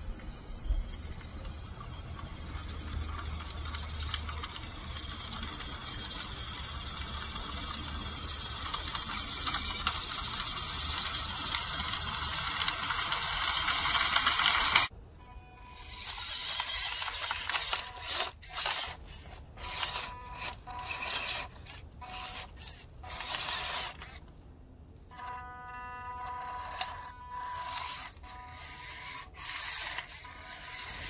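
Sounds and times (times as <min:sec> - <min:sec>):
toy truck motor whining: 0:00.0 - 0:24.4, 0:25.1 - 0:31.0
tyres over dry leaves and dirt: 0:15.7 - 0:31.0.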